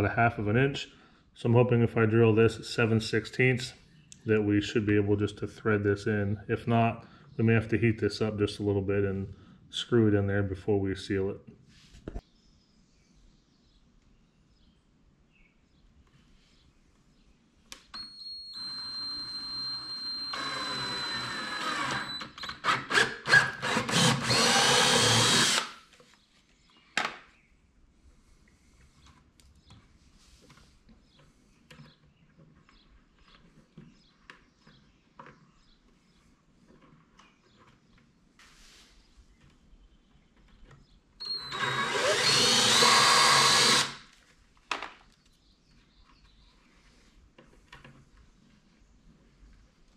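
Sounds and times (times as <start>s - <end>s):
drill boring through plastic: 18.6s - 25.8s, 41.2s - 44.1s.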